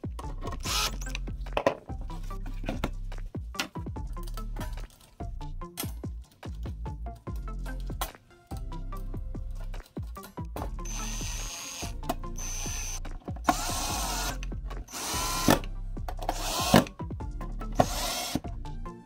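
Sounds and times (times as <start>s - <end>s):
cordless drill driving screws: 0.6s - 1.2s, 10.8s - 15.7s, 16.3s - 16.9s, 17.8s - 18.4s.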